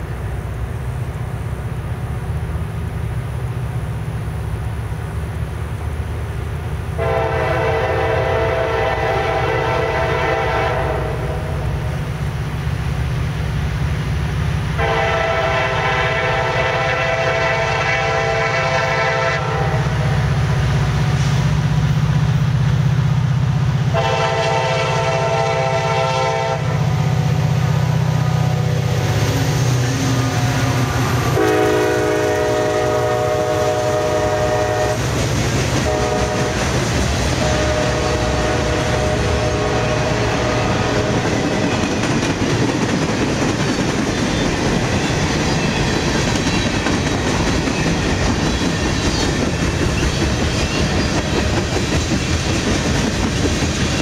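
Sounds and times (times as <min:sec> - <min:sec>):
locomotive air horn blasts: 0:07.0 - 0:11.8, 0:14.8 - 0:20.3, 0:23.9 - 0:27.4, 0:29.9 - 0:35.1, 0:35.8 - 0:41.2
diesel engine rumble: 0:26.9 - 0:34.3
freight cars rolling by: 0:27.4 - 0:33.8.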